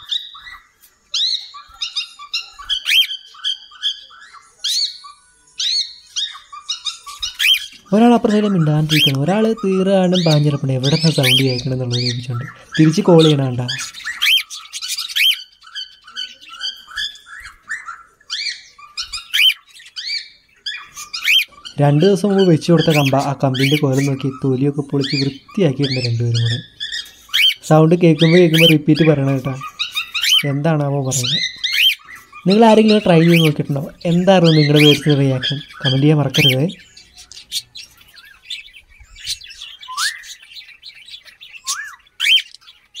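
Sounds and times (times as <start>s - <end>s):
cockatiels chirping: 0.0s - 43.0s.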